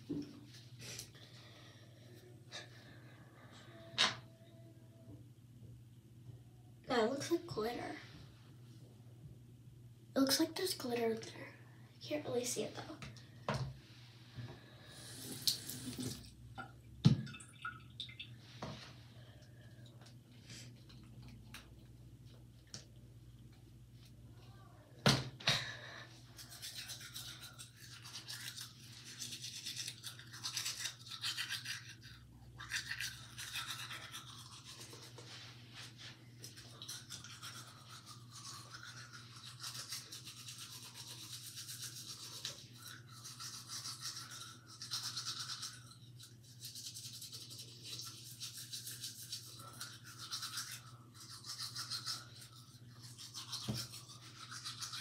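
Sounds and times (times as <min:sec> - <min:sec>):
toothbrush scrubbing teeth: 0:26.2 - 0:55.0.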